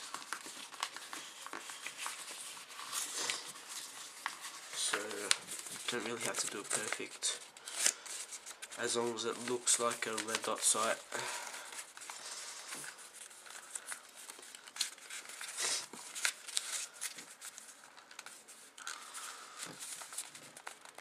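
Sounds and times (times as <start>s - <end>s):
paper crinkling and rustling: 0.0s - 21.0s.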